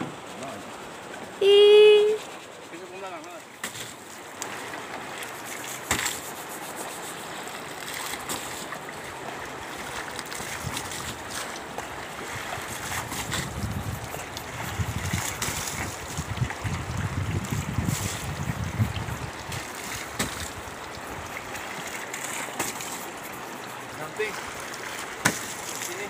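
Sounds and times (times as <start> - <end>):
river water running over stones: 0.0 - 26.0
water splashes: 0.0 - 26.0
wind rumble on microphone: 10.4 - 21.6.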